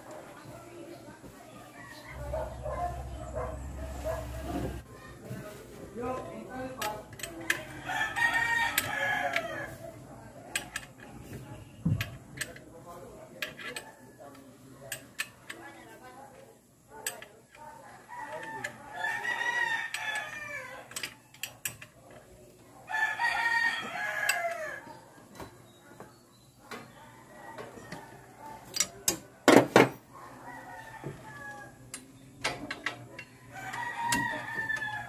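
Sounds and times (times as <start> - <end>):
rooster crowing: 7.7 - 9.8, 18.1 - 20.9, 22.9 - 24.9, 30.3 - 31.8, 33.5 - 35.0.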